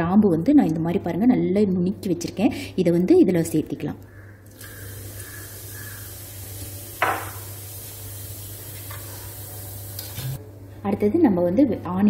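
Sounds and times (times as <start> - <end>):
spices sizzling in hot oil: 4.5 - 10.4.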